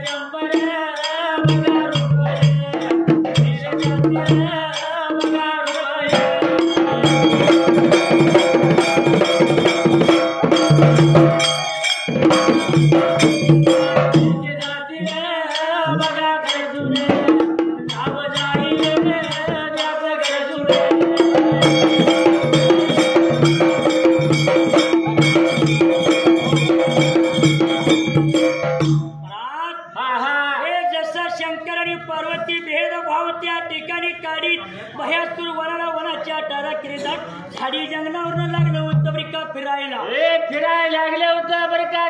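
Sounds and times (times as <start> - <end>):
metallic percussion strikes: 0.0 - 29.3
dhol beaten in steady rhythm: 0.0 - 42.0.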